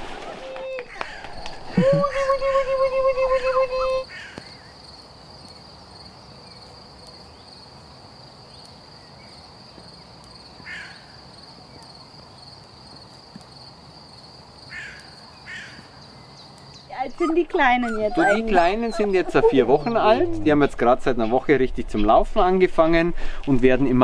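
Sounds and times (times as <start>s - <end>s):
insects chirring: 0.9s - 22.7s
short calls: 16.8s - 20.2s.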